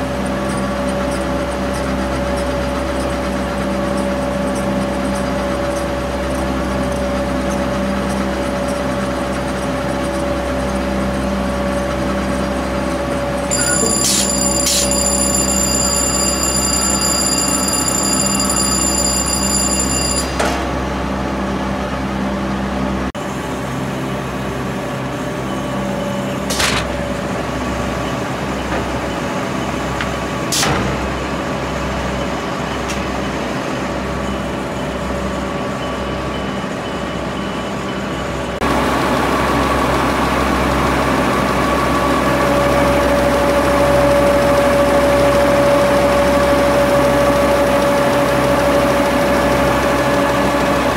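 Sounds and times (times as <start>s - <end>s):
printing press running: 0.3s - 21.3s, 38.6s - 50.9s.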